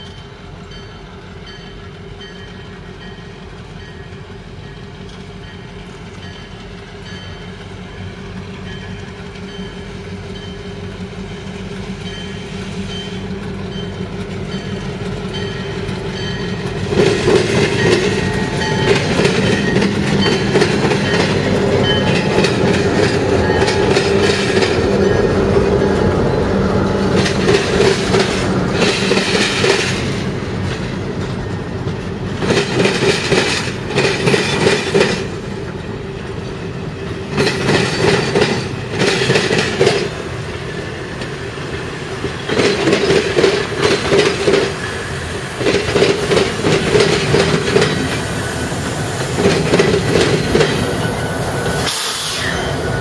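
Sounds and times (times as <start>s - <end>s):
diesel locomotives under power: 0.0s - 53.0s
train wheels clattering over rail joints: 12.9s - 52.3s.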